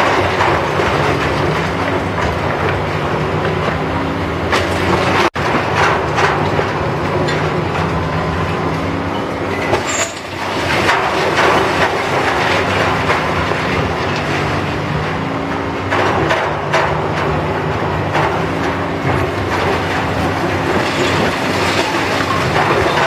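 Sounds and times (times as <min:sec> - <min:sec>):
heavy machinery engine hum: 0:00.0 - 0:23.0
rubble clattering and falling: 0:19.4 - 0:23.0.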